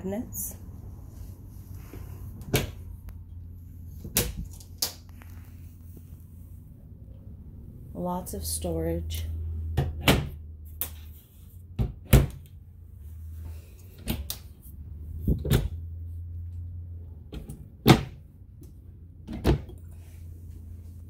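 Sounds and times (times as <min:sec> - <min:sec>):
low steady hum: 0:00.0 - 0:21.0
cabinet doors opening and shutting: 0:02.4 - 0:02.8, 0:09.7 - 0:10.4, 0:11.8 - 0:12.5, 0:15.3 - 0:15.8, 0:17.3 - 0:18.2, 0:19.2 - 0:19.8.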